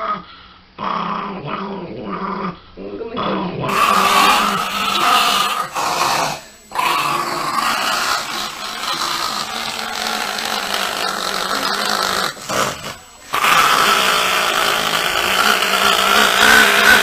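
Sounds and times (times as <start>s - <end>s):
small dog growling: 0.8s - 17.0s.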